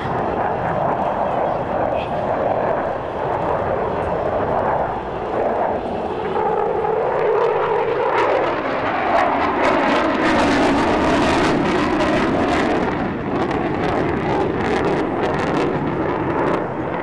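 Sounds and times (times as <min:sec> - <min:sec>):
fighter jet engine noise: 0:00.0 - 0:17.0.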